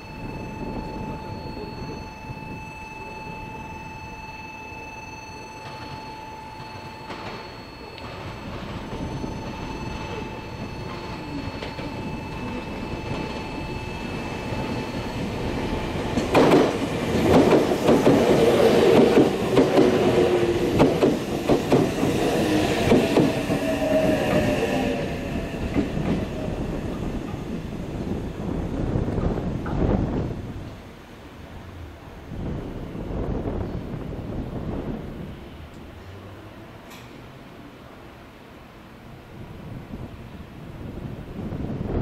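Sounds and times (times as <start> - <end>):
whining tone gliding in pitch: 0.0 - 28.7
train passing: 0.0 - 42.0.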